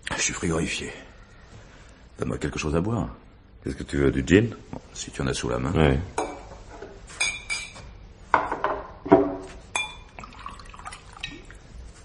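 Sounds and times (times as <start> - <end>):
glasses clinking: 7.2 - 7.8, 9.2 - 11.4
liquid pouring into glass: 9.8 - 11.6.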